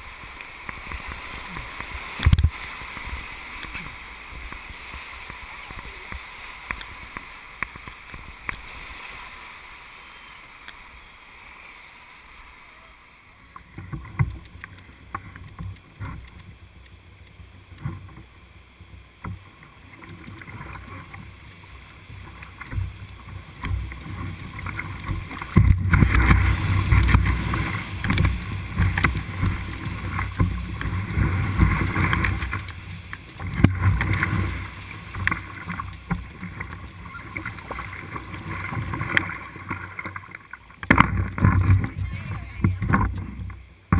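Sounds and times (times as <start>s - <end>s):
whitewater rapids rushing: 0.0s - 16.7s, 19.6s - 43.4s
splashes and knocks: 0.6s - 8.7s, 22.3s - 43.9s.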